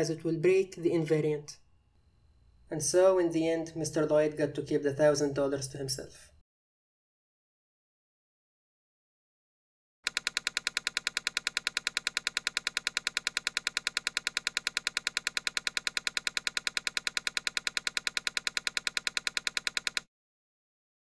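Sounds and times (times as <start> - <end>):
rapid clicks: 10.0 - 20.1.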